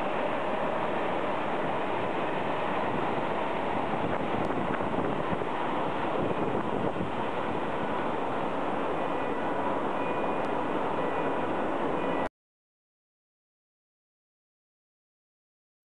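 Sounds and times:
electric train passing at speed: 0.0s - 12.3s.

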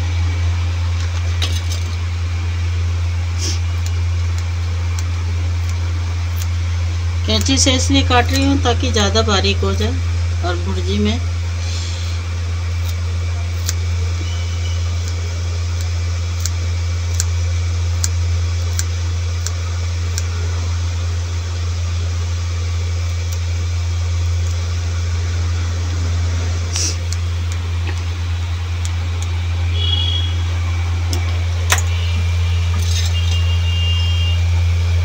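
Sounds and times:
loud steady low hum: 0.0s - 35.0s
scissors snipping herbs: 3.4s - 6.6s, 7.3s - 8.6s, 12.8s - 20.3s.

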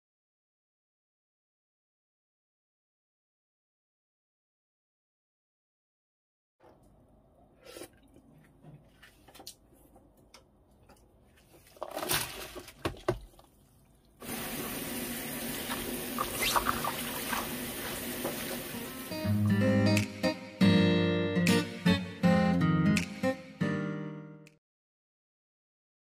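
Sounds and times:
watery hiss with crackles: 14.2s - 19.2s.

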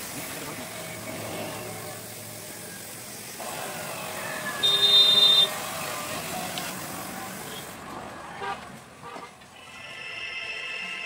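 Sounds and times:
steady background noise: 0.0s - 11.0s
vehicle horn toot: 4.6s - 5.6s.

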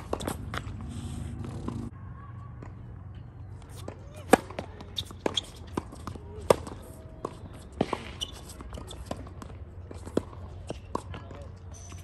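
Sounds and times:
racquets striking tennis ball: 0.0s - 1.9s, 3.5s - 12.0s
shoe scrape on court: 0.0s - 1.9s, 3.6s - 7.0s, 7.6s - 11.0s
tennis ball bouncing: 0.0s - 1.9s, 3.6s - 11.4s.

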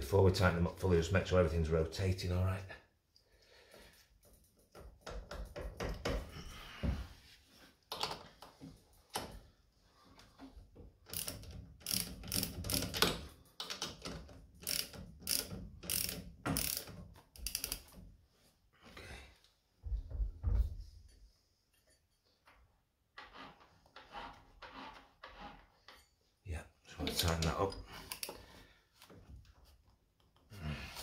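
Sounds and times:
socket ratchet clicking: 11.1s - 17.9s.

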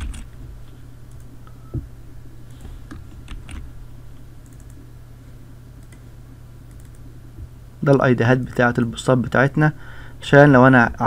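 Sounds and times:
keyboard keystrokes: 0.0s - 0.3s, 3.3s - 3.6s
steady low hum: 0.0s - 11.0s.

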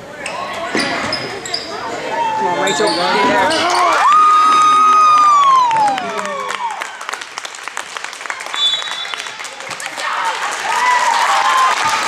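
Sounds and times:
crowd cheering and clapping: 3.7s - 12.0s.

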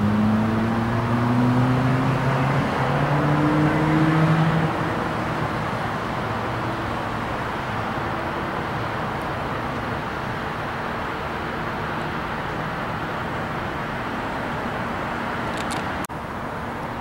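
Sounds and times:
motor engine droning: 0.0s - 6.7s.

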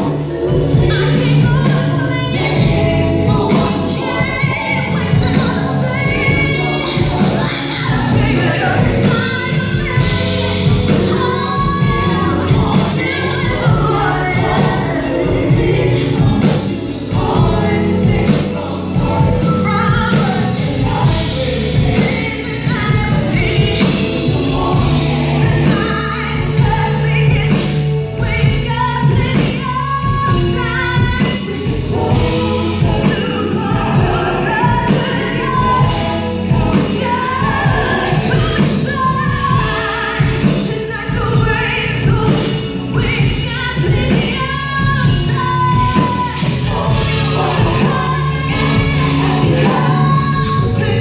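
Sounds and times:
backing singers: 0.0s - 51.0s
live band playing: 0.0s - 51.0s
woman singing lead: 0.0s - 51.0s.

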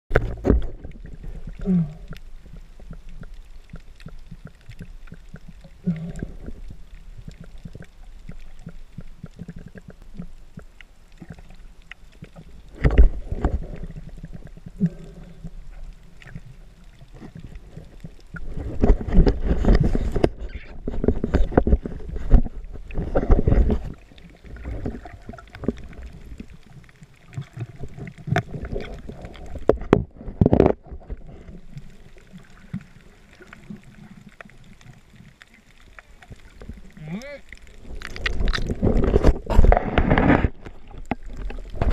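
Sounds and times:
knocks underwater: 0.1s - 1.9s, 12.7s - 15.0s, 18.4s - 26.1s, 27.8s - 31.6s, 37.9s - 41.9s
muffled underwater rumble: 0.1s - 41.9s.

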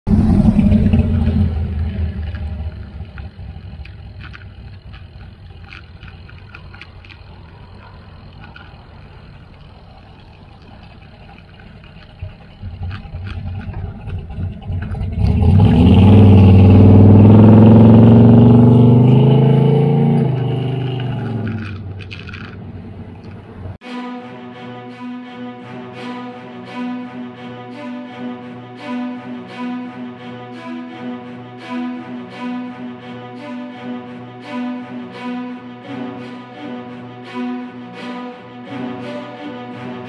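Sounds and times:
car engine revving: 0.0s - 23.8s
wind and road noise: 0.1s - 23.8s
light rattling clicks: 2.2s - 15.2s, 20.2s - 23.5s.

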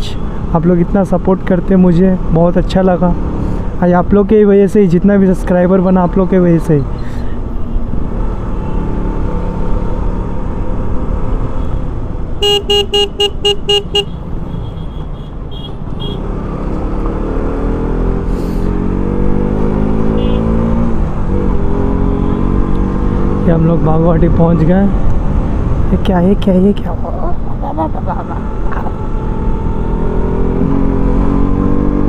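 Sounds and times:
road traffic: 0.0s - 32.0s
car horn short toots: 12.4s - 16.2s
engine revving up: 16.3s - 23.5s, 29.2s - 32.0s.

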